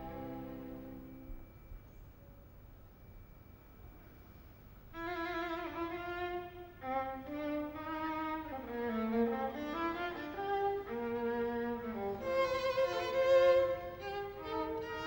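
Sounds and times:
string trio slow bowed notes: 0.0 - 1.6, 5.2 - 15.0.

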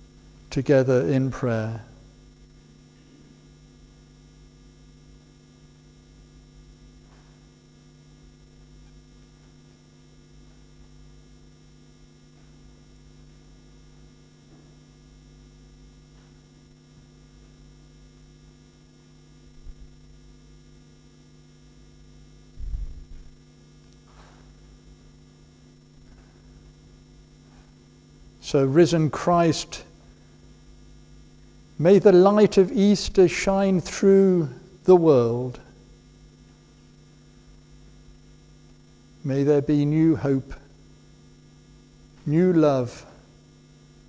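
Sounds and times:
electrical mains hum: 0.0 - 44.0
dull low thumps: 22.6 - 23.4.

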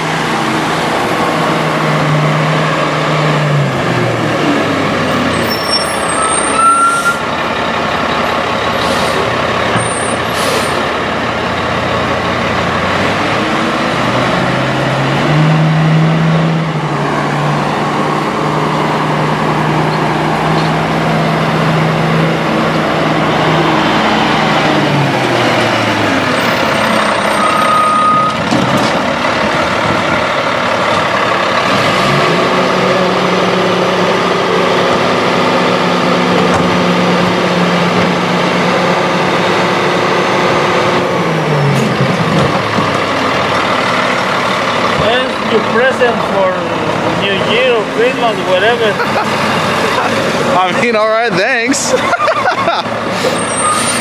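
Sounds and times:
garbage truck diesel engine revving: 0.0 - 54.0
short high squeal: 5.4 - 7.3, 26.8 - 28.4, 53.2 - 54.0.

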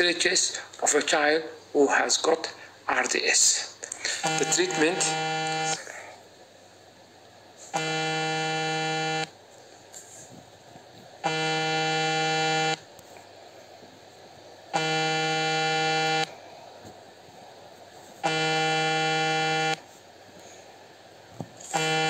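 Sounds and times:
low buzzing tone: 4.2 - 5.8, 7.8 - 9.4, 11.2 - 12.9, 14.7 - 16.3, 18.2 - 19.8, 21.7 - 22.0.

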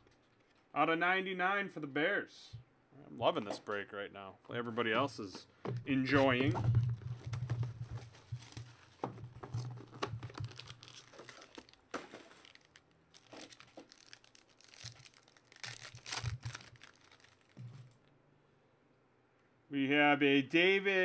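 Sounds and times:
cards being handled: 4.8 - 18.0
plastic wrapper crinkling: 6.6 - 18.1.

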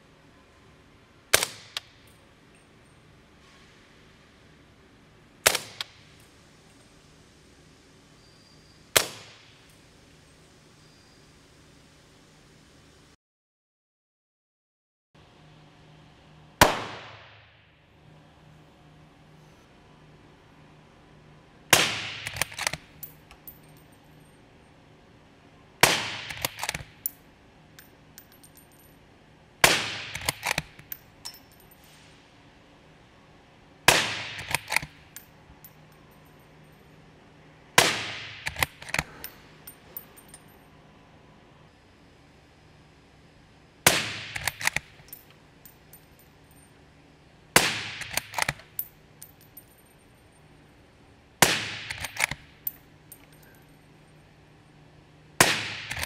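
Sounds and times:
suppressed rifle shots: 16.6 - 17.3
rifle bolt clicks and clanks: 22.2 - 23.9, 26.2 - 27.2, 30.0 - 31.8, 34.3 - 36.2, 38.4 - 40.5, 44.2 - 46.6, 47.8 - 49.8, 51.7 - 53.6, 55.7 - 56.0.

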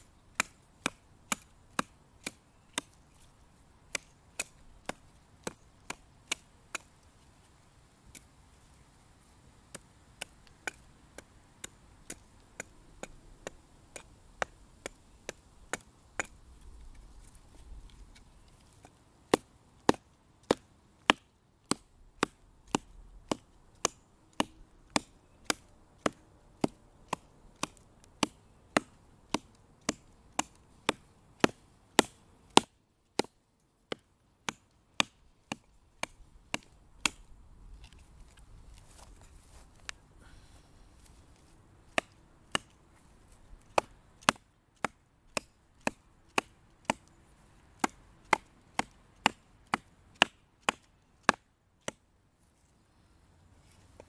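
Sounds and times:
hatchet chopping branch: 0.3 - 3.3, 3.9 - 7.0, 9.7 - 16.4, 17.9 - 38.0, 41.9 - 42.8, 43.6 - 47.2, 47.8 - 52.0.

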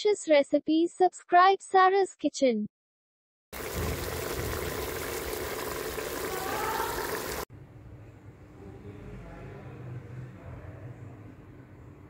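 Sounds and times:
meat sizzling in a pot: 3.6 - 7.5.

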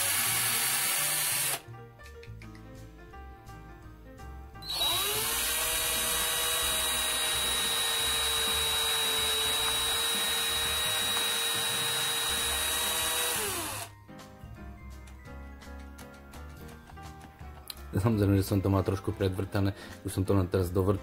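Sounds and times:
cordless drill whine: 0.0 - 1.6, 4.6 - 13.9.

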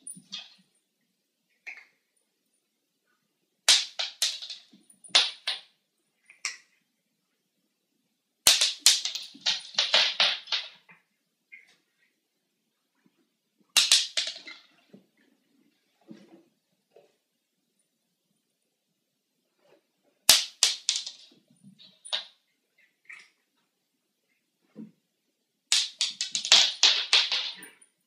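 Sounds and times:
clicking and clattering on tiles: 0.0 - 0.7, 3.7 - 5.7, 6.3 - 6.7, 8.5 - 11.8, 13.7 - 14.8, 20.3 - 22.4, 25.7 - 28.0.

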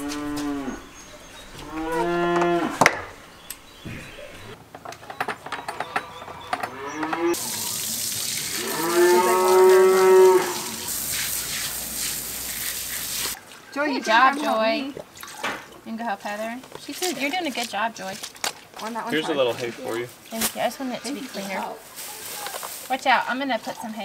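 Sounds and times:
cow mooing: 0.0 - 0.9, 1.6 - 2.9, 8.5 - 10.9.

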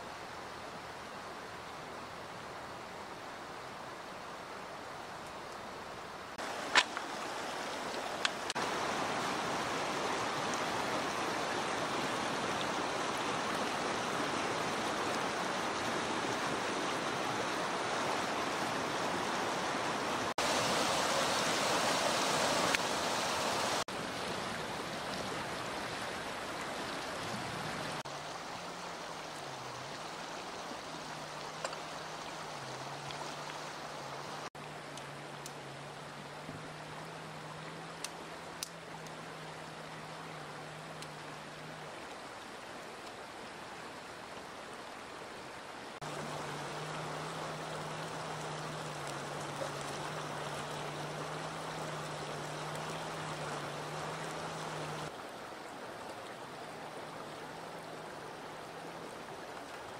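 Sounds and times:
river rushing over stones: 0.0 - 59.9.

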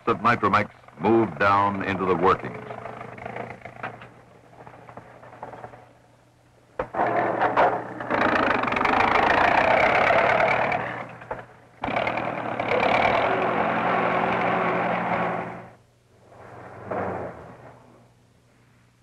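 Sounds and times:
forklift engine running: 0.0 - 5.9, 7.0 - 15.8.

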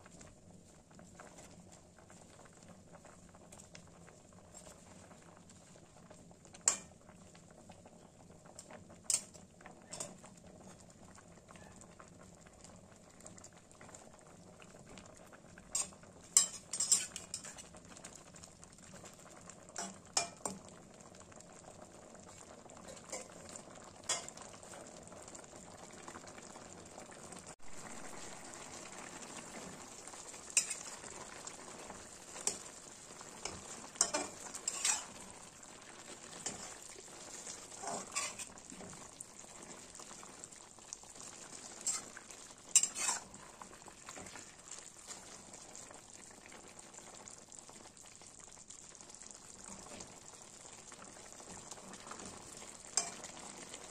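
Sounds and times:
curry bubbling and sizzling: 0.0 - 53.9
metal spatula scraping a wok: 15.8 - 17.6, 30.6 - 30.9, 33.4 - 35.2, 36.4 - 36.8, 37.4 - 38.6, 41.7 - 43.4.

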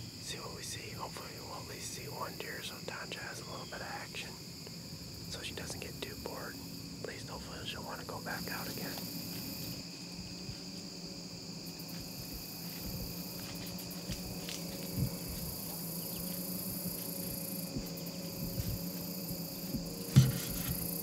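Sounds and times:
insect chorus trilling: 0.0 - 21.0
faint ticks and rustles: 0.2 - 21.0
soft knock: 19.8 - 20.8.

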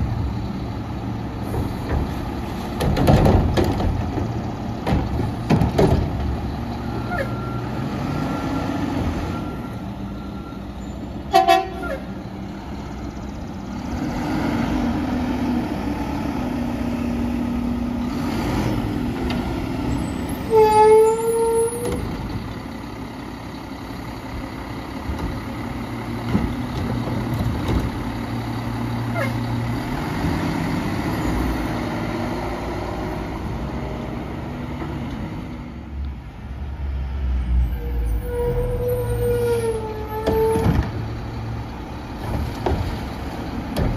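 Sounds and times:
garbage truck engine running: 0.0 - 36.4, 40.0 - 43.9
truck horn toot: 11.3 - 12.2, 20.4 - 21.8.

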